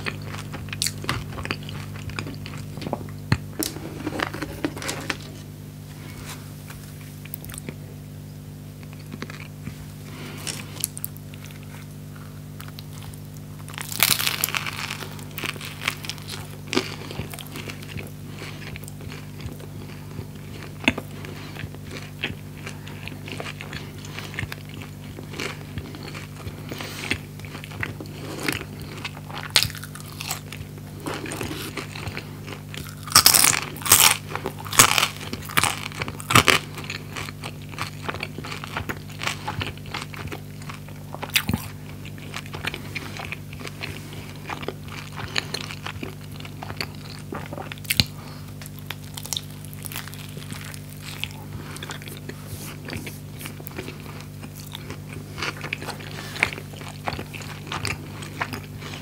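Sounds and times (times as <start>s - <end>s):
crunchy bite: 12.6s - 43.8s, 44.5s - 59.0s.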